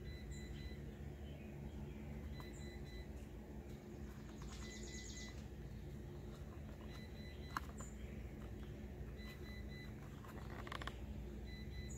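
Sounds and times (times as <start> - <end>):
birds chirping: 0.0 - 10.0
low steady hum: 0.0 - 11.9.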